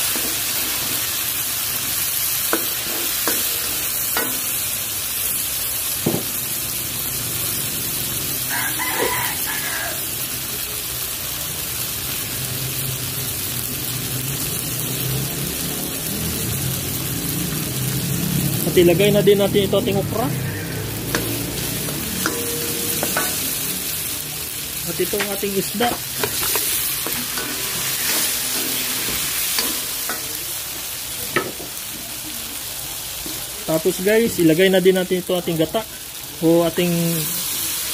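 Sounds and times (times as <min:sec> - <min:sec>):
sauce sizzling in a wok: 0:00.0 - 0:37.9
ladle knocking on pan: 0:21.2 - 0:23.5.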